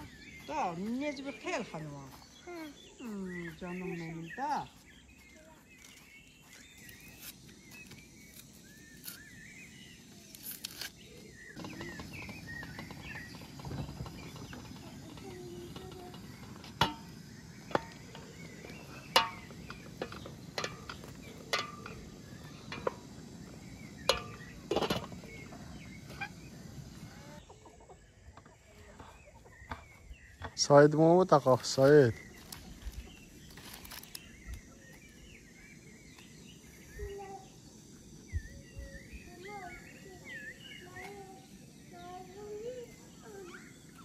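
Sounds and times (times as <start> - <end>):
birds chirping: 0.0 - 44.0
cookware clinking and knocking: 16.8 - 17.1.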